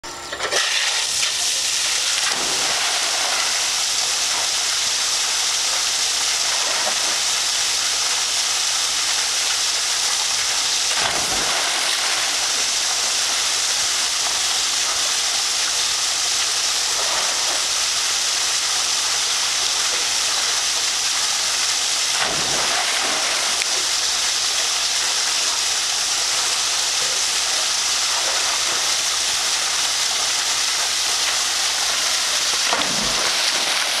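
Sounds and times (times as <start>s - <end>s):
running water rushing: 0.5s - 34.0s
dog splashing into pool: 2.1s - 3.8s, 10.9s - 13.4s, 22.2s - 23.9s, 31.7s - 34.0s.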